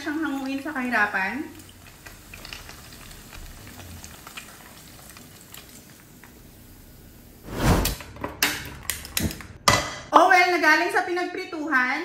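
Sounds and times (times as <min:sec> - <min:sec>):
meat sizzling in hot oil: 0:00.0 - 0:07.4.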